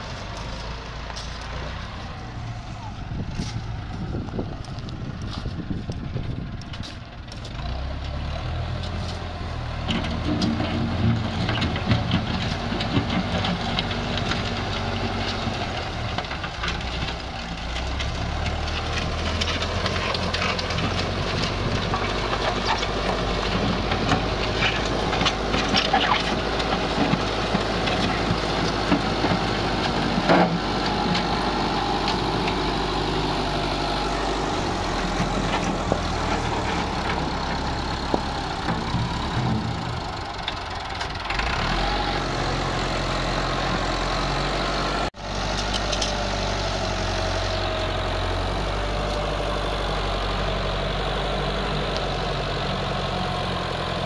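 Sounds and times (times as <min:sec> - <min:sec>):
engine running: 0:00.0 - 0:54.0
knocks and scrapes: 0:08.8 - 0:32.9, 0:34.5 - 0:41.8.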